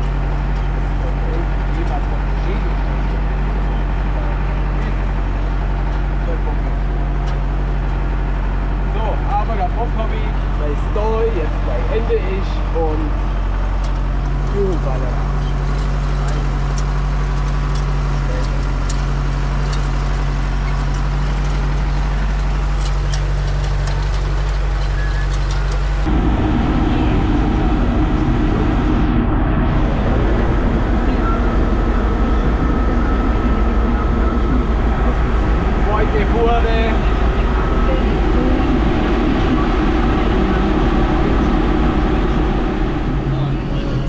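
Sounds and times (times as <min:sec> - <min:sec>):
tractor engine running: 0:00.0 - 0:44.0.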